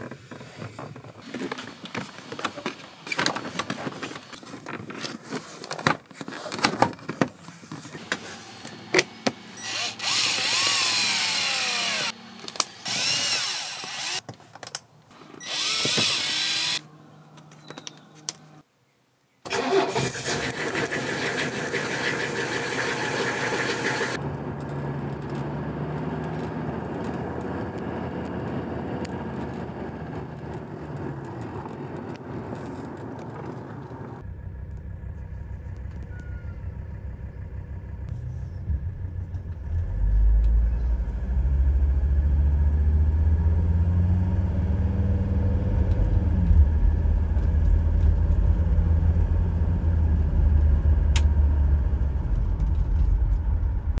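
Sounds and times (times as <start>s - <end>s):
diesel engine running: 19.5s - 31.2s, 34.2s - 54.0s
low rumble inside car cabin: 34.0s - 42.3s.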